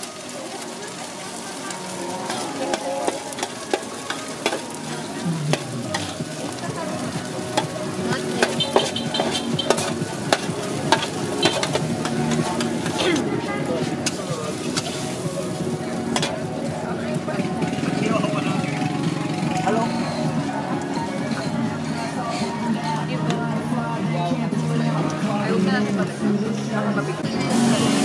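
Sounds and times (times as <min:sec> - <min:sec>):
hot oil sizzling: 0:00.0 - 0:23.6, 0:27.2 - 0:28.0
metal spatula scraping a pan: 0:07.6 - 0:13.3.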